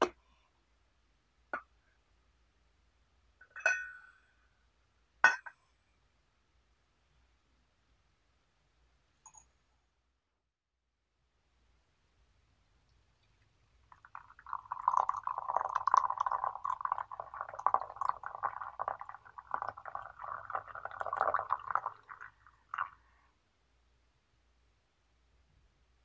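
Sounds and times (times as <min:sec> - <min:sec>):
water pouring into teapot: 0:13.4 - 0:23.0.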